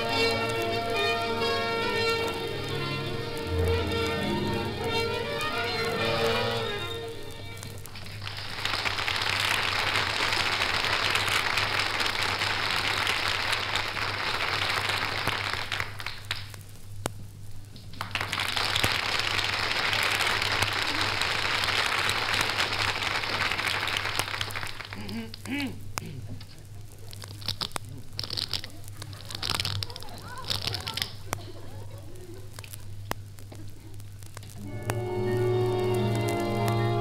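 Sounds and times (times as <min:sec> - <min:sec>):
low steady hum: 0:00.0 - 0:10.2, 0:24.7 - 0:37.0
audience applauding: 0:00.0 - 0:16.5, 0:17.9 - 0:25.5, 0:28.2 - 0:32.7, 0:34.6 - 0:37.0.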